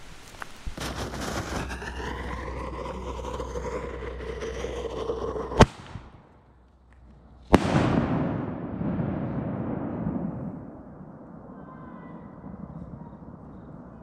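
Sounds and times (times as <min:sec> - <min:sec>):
firework shell bursting: 0:00.0 - 0:06.4
mortar launch bang: 0:07.5 - 0:10.9.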